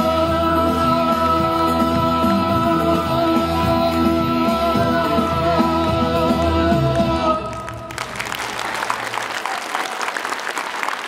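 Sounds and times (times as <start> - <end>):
audience applause: 7.5 - 11.0.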